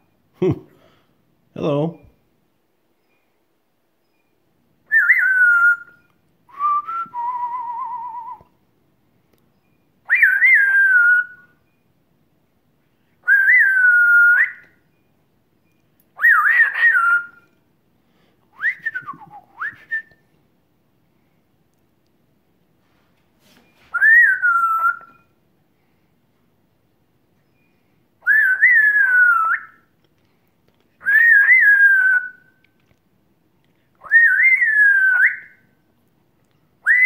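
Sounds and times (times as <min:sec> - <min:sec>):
parrot whistling: 0:04.9 - 0:08.4, 0:10.1 - 0:11.6, 0:13.2 - 0:14.8, 0:16.2 - 0:17.5, 0:23.9 - 0:25.3, 0:28.2 - 0:29.9, 0:31.0 - 0:32.6, 0:34.0 - 0:35.7.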